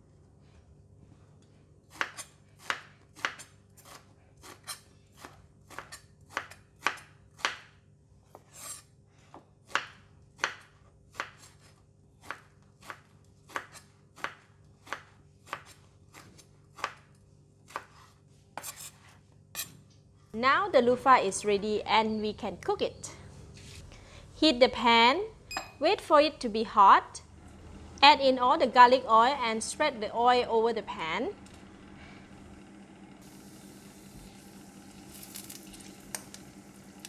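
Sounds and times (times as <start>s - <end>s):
knife chopping on wooden board: 1.9s - 7.7s, 9.7s - 17.1s.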